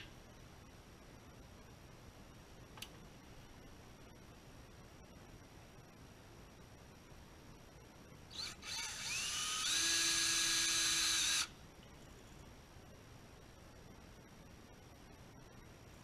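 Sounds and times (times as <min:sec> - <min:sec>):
cordless drill motor whining: 0:08.3 - 0:11.5.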